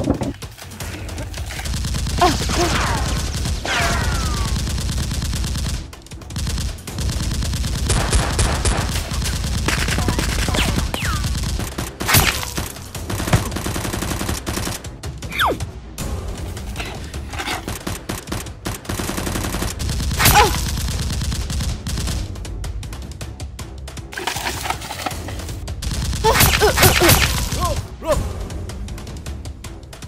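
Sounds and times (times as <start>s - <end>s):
automatic gunfire sound effects: 1.6s - 14.9s.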